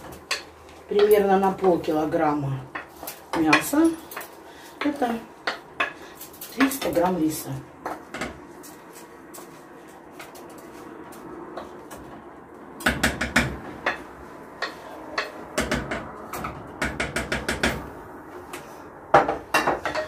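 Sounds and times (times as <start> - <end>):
wooden spatula knocking on a pot: 12.8 - 14.0.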